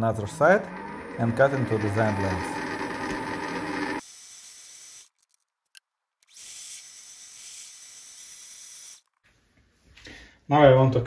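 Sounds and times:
lathe cutting metal: 0.0 - 4.0
lathe spindle hissing and whining: 0.0 - 4.5.

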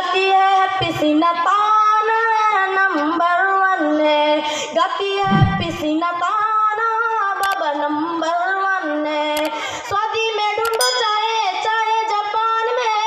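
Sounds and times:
woman singing into a microphone: 0.0 - 13.0
low thump: 5.2 - 5.9.

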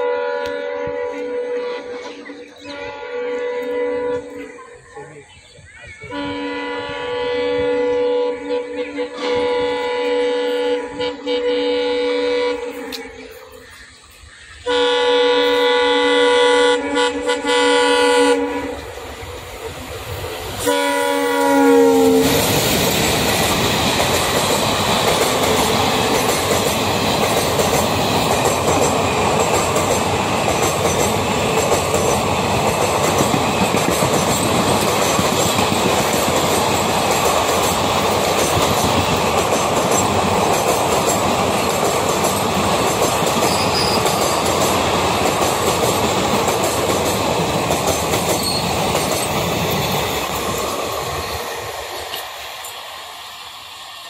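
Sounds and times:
locomotive horn blast: 0.0 - 4.6, 6.0 - 13.4, 14.6 - 18.9, 20.6 - 22.5
train rushing past: 0.0 - 54.0
wheels clacking over rail joints: 22.1 - 52.9.

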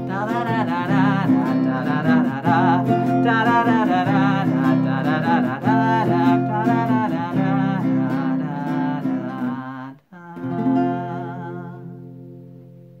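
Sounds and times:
man singing wordlessly: 0.0 - 12.3
acoustic guitar strumming: 0.0 - 13.0.

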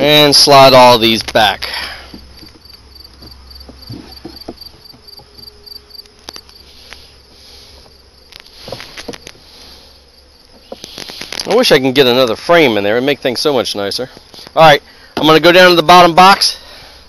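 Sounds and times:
cricket chirping: 0.0 - 15.0
wooden frames knocking and scraping: 1.2 - 6.4, 8.6 - 9.5, 10.4 - 11.5.

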